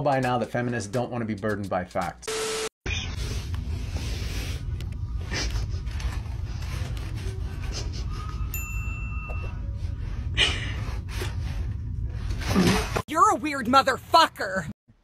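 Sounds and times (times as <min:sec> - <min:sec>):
clear ding: 0:08.5 - 0:09.7.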